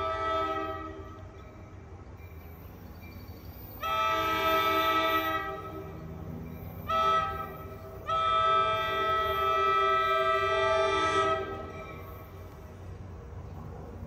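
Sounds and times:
train air horn: 0.0 - 1.3, 3.8 - 6.0, 6.8 - 12.4
low train rumble: 0.0 - 14.0.

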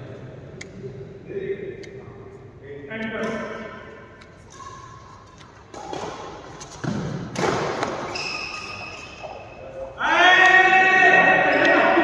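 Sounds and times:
short high squeak: 8.1 - 9.6.

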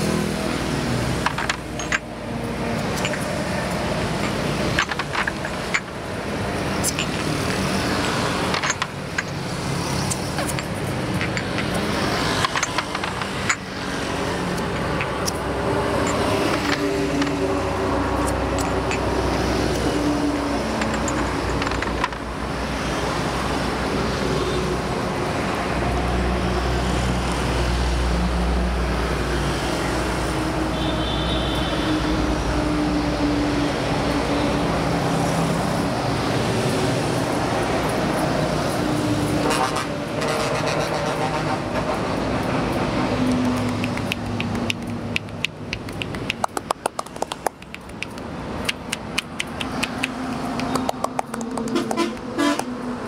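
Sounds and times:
heavy vehicle rumble: 0.0 - 30.7, 31.8 - 53.0
highway traffic passing: 0.0 - 53.0
sharp clicks: 43.2 - 52.7.

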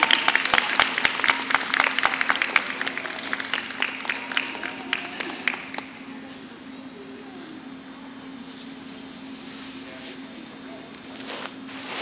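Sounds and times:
small crowd clapping: 0.0 - 6.0
steady low hum: 0.0 - 12.0.

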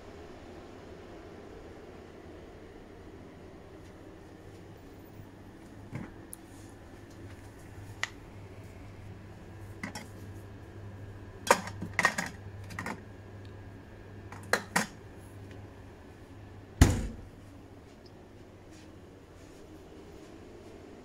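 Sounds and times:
fridge door thudding shut: 16.8 - 17.4.

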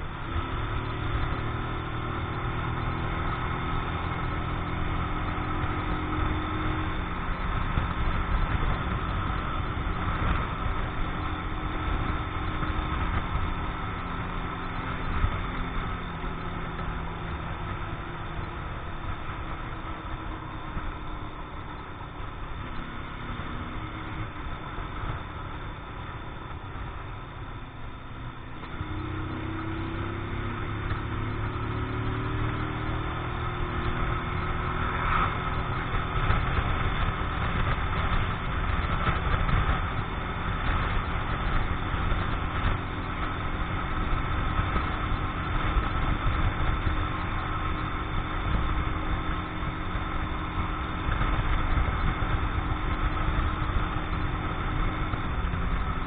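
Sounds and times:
motorcycle engine running: 0.0 - 56.0
wind noise on microphone: 28.2 - 56.0.

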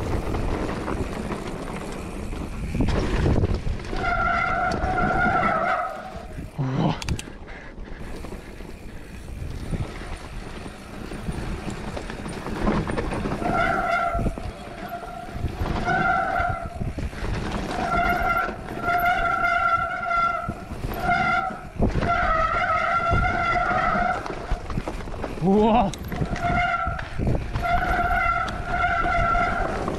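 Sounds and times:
mountain bike rumbling on dirt trail: 0.0 - 29.9
disc brakes squealing: 3.8 - 6.5, 12.2 - 17.0, 17.7 - 24.4, 26.0 - 29.9.

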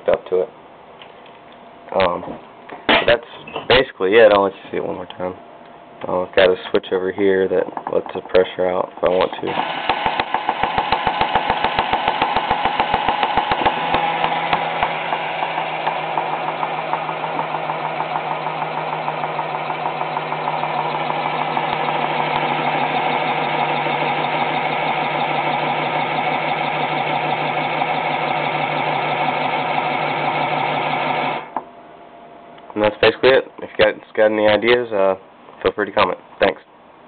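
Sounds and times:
steady hum: 0.0 - 37.0
toy motor cranking pumps: 9.4 - 31.4.

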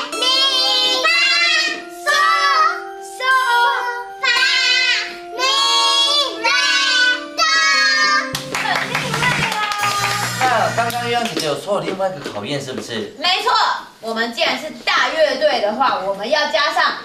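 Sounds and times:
children singing a scale: 0.0 - 10.0.

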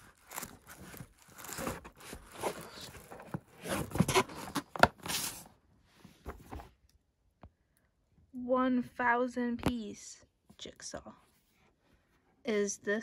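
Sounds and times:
cardboard scraping against cardboard: 0.0 - 5.5.

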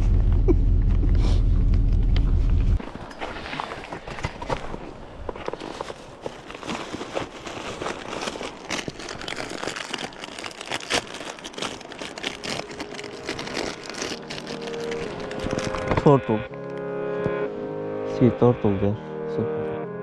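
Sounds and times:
plastic wrapper crackling: 5.9 - 16.8.

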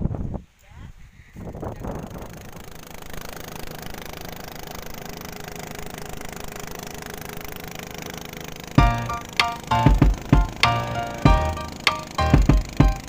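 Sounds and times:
boat engine running: 1.8 - 13.0
music: 8.8 - 13.0.

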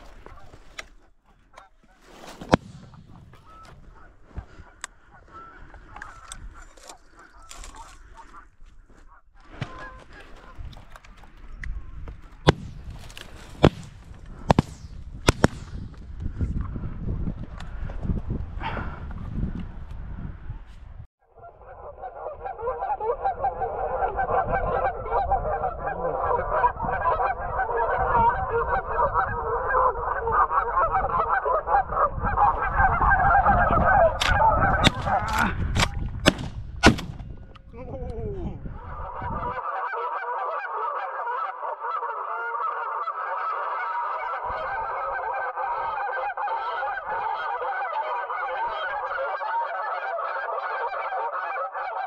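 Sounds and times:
geese honking: 0.0 - 11.0, 21.4 - 35.5, 38.7 - 52.0
wind rumbling on microphone: 2.5 - 39.6
shotgun shots: 12.4 - 15.8, 35.8 - 37.2.

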